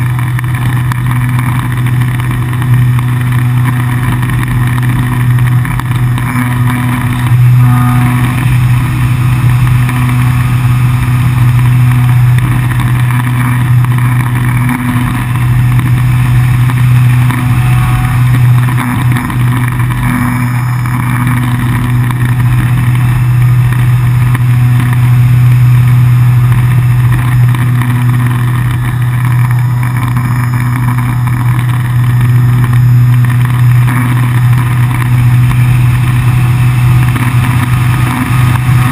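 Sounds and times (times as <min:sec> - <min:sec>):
electric motor and propeller hum: 0:00.0 - 0:38.9.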